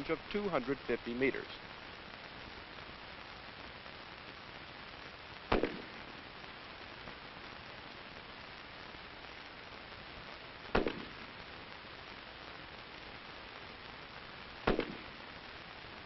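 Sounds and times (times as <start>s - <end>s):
background hiss: 0.0s - 16.0s
rifle shots: 5.5s - 6.2s, 10.7s - 11.3s, 14.6s - 15.2s.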